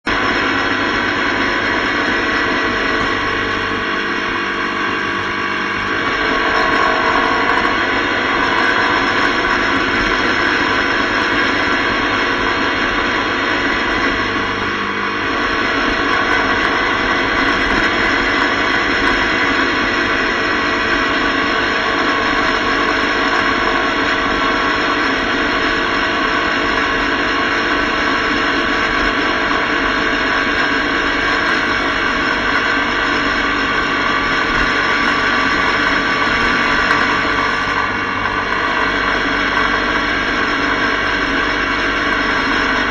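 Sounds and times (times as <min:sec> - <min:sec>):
motorcycle engine drone: 0:00.0 - 0:42.9
wind rush and road noise: 0:00.0 - 0:42.9.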